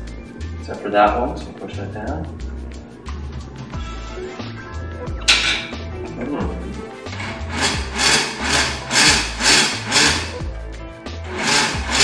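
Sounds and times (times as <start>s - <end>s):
background music with steady beat: 0.0s - 12.0s
blender running: 7.2s - 10.4s, 11.2s - 12.0s.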